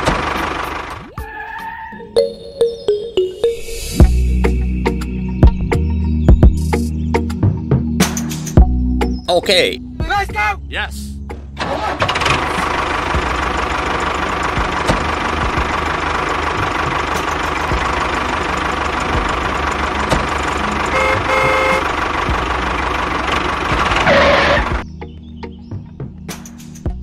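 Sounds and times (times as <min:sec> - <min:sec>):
tractor motor running: 0:00.0 - 0:01.1, 0:11.6 - 0:24.8
horn toots: 0:20.9 - 0:22.0.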